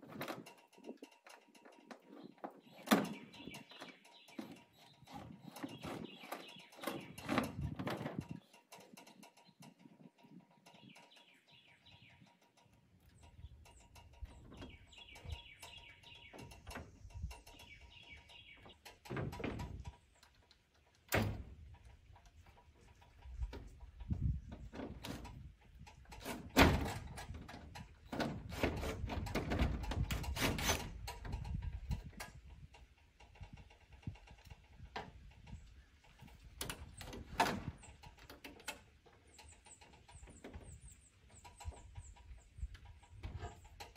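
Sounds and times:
knocks and rattles on metal siding: 0:00.0 - 0:43.9
birds chirping: 0:02.0 - 0:21.0.

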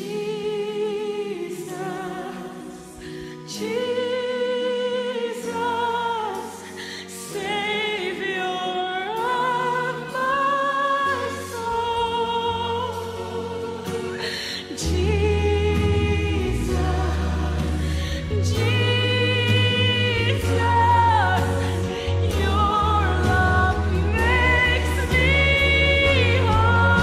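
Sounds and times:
woman singing gospel solo: 0:00.0 - 0:27.0
sustained accompaniment chords: 0:14.8 - 0:27.0.

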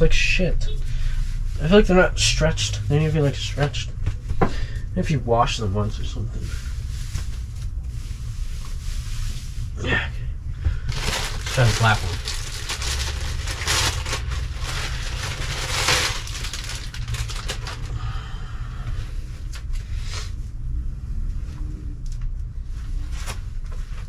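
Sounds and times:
low rumble: 0:00.0 - 0:24.0
packaging and fabric rustling: 0:10.9 - 0:17.9.

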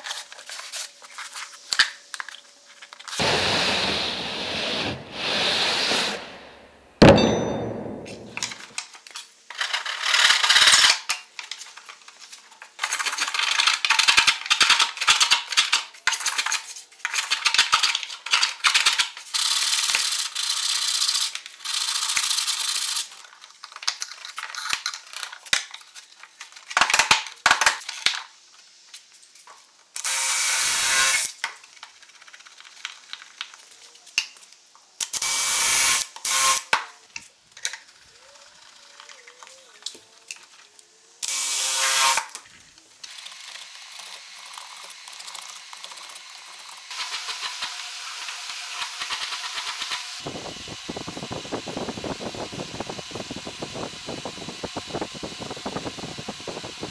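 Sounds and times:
hand tools scraping wood: 0:03.2 - 0:06.5
sharp knock: 0:07.0 - 0:08.6
cordless drill running: 0:46.9 - 0:56.9.

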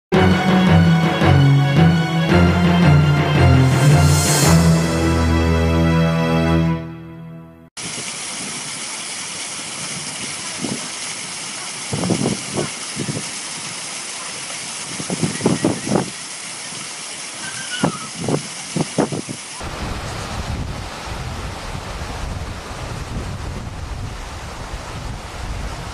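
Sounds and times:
water rushing along concrete wall: 0:07.8 - 0:25.9
wind on microphone: 0:09.8 - 0:11.0, 0:11.8 - 0:13.8, 0:14.8 - 0:16.2, 0:17.4 - 0:25.9.

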